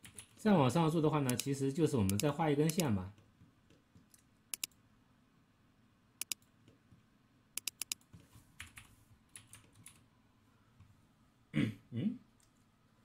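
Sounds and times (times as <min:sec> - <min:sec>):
mouse and keyboard clicking: 0:01.2 - 0:02.9, 0:03.7 - 0:04.8, 0:06.2 - 0:06.8, 0:07.6 - 0:08.8.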